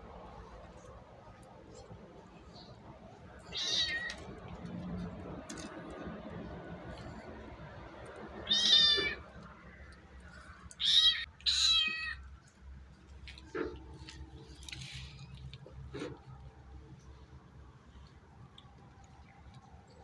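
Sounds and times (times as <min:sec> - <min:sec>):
young animal crying: 0:03.4 - 0:04.2, 0:08.4 - 0:09.4, 0:10.7 - 0:12.2.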